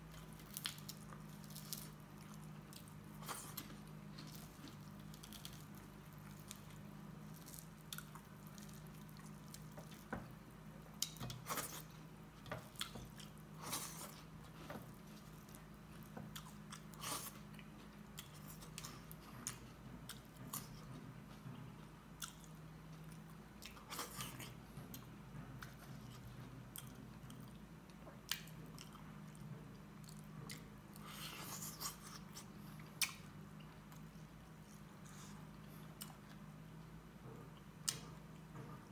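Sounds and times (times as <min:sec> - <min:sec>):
faint low hum: 0:00.0 - 0:38.9
chewing and biting: 0:00.1 - 0:10.3.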